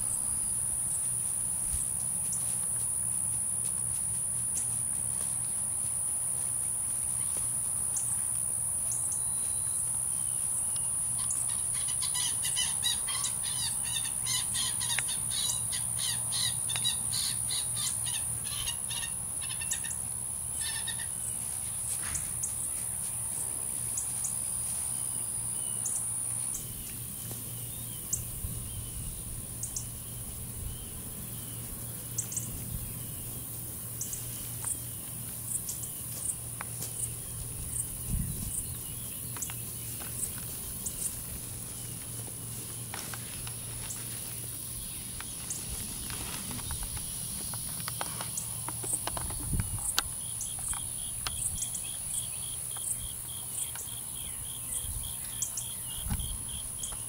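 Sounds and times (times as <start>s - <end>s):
birds singing: 8.9s - 21.4s, 25.0s - 57.0s
ticks and rustles in grass: 34.0s - 53.9s.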